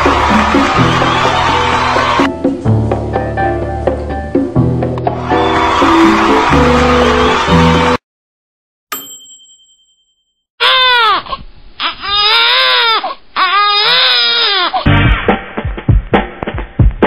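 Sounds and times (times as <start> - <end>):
bell-like ding: 8.9 - 10.4.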